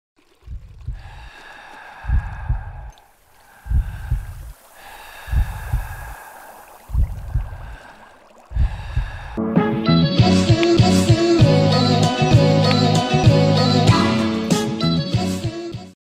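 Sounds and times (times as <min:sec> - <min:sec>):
heartbeat double thumps: 0:00.4 - 0:01.1, 0:02.0 - 0:02.9, 0:03.6 - 0:04.5, 0:05.3 - 0:06.1, 0:06.9 - 0:07.8, 0:08.5 - 0:09.3.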